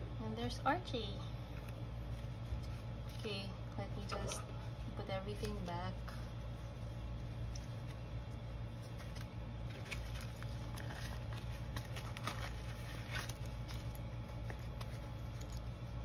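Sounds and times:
steady low hum: 0.0s - 16.0s
paper and plastic rustling: 7.3s - 16.0s.

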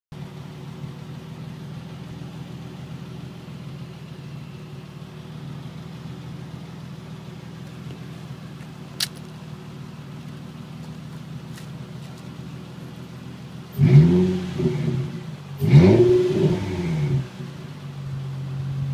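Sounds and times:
car engine idling: 0.1s - 18.9s
sharp click: 9.0s - 9.3s.

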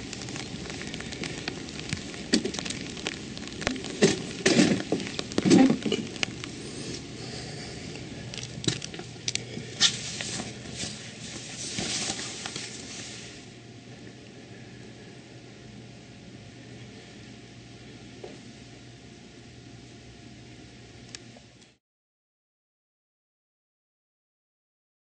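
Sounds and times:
light rain pattering: 0.0s - 18.8s.

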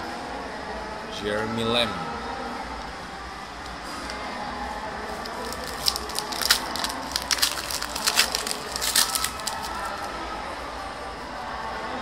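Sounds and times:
foil wrapper crinkling: 5.1s - 10.1s.

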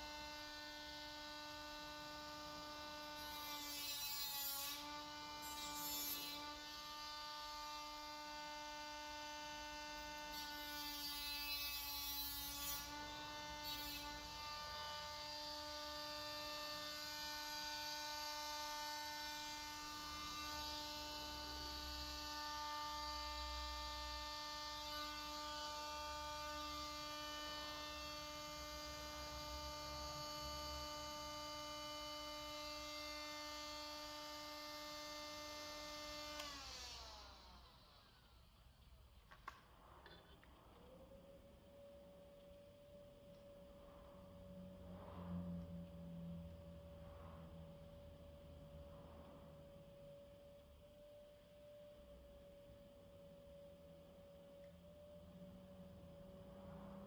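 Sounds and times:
cordless power tool motor running: 29.2s - 38.2s.

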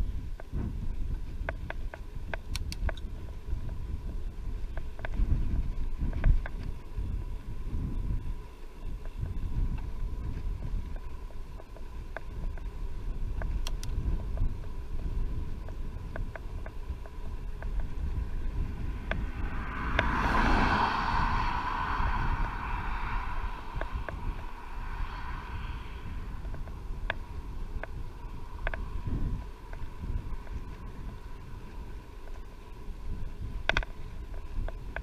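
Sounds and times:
wind buffeting microphone: 0.0s - 35.0s
sharp clicks: 1.5s - 3.1s, 13.4s - 14.4s.

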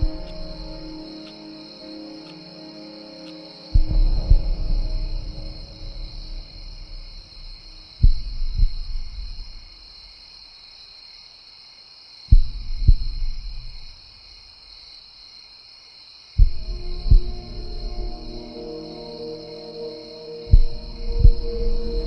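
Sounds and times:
night insects chirping: 0.0s - 22.0s
deep double thump: 3.8s - 9.6s.

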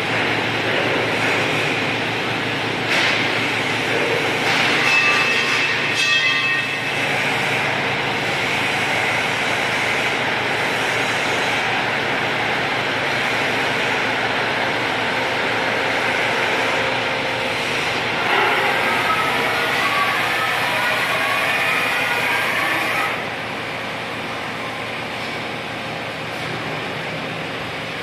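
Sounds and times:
boring mill running: 0.0s - 28.0s.

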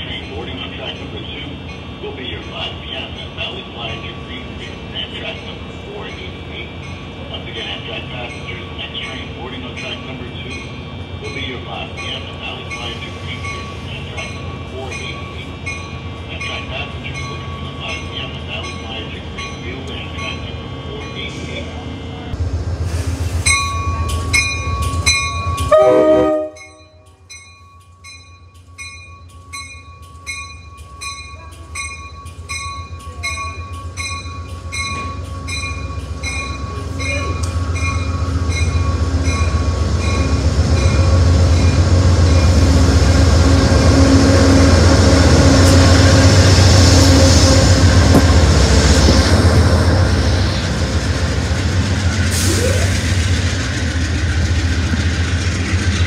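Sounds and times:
train bell ringing: 0.0s - 22.4s, 23.4s - 42.7s
diesel locomotive engine passing: 0.0s - 56.0s
train horn: 25.7s - 27.0s.

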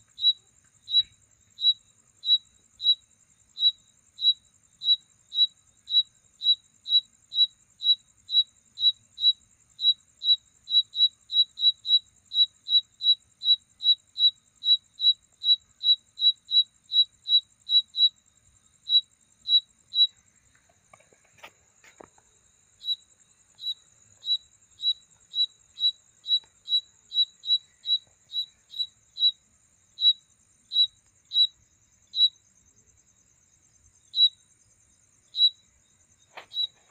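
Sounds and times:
cricket chirping: 0.0s - 36.9s
insect trill: 0.0s - 36.9s
rustle: 20.0s - 28.8s, 36.0s - 36.9s.

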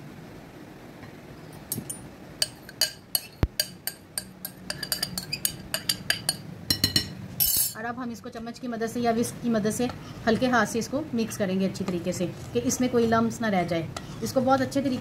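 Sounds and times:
metal spoon clinking on glass: 1.7s - 7.8s.

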